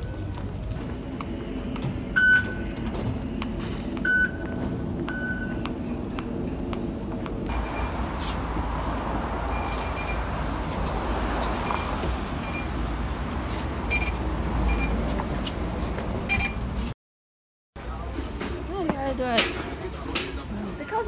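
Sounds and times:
bus engine rumble: 0:00.0 - 0:17.0
short electronic beeps: 0:07.5 - 0:08.0, 0:09.5 - 0:10.3, 0:13.9 - 0:15.0, 0:16.3 - 0:16.6.

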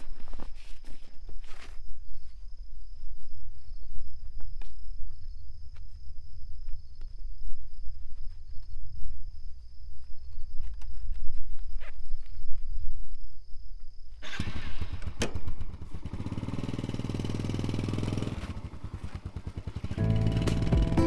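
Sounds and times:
rustling: 0:00.0 - 0:13.4
crickets trilling: 0:00.0 - 0:21.0.

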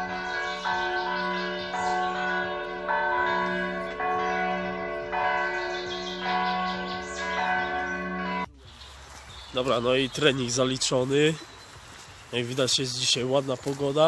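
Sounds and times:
church bells ringing: 0:00.0 - 0:08.6.

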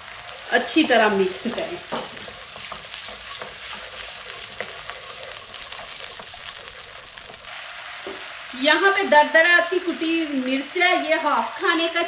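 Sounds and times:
frying sizzle in oil: 0:00.0 - 0:12.0
wooden spatula scraping: 0:01.0 - 0:08.3.

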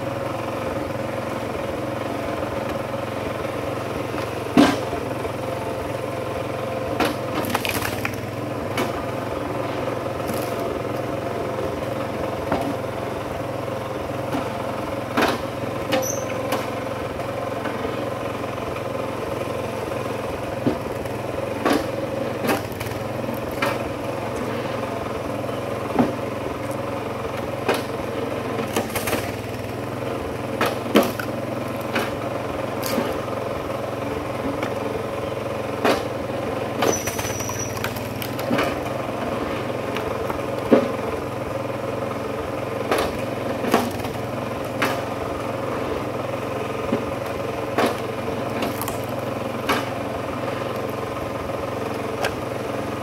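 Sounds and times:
log splitter engine running: 0:00.0 - 0:53.0
wood cracking apart: 0:07.4 - 0:08.3, 0:10.2 - 0:11.0, 0:28.6 - 0:29.6, 0:32.8 - 0:33.2, 0:36.8 - 0:38.9, 0:47.7 - 0:49.9.

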